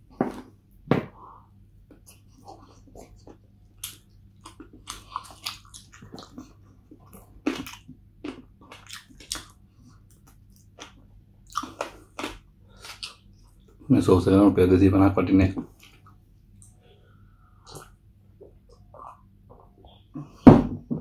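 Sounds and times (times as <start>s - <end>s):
mouth clicks and crunches: 2.0s - 13.6s
chewing and biting chicken wings: 2.4s - 13.3s.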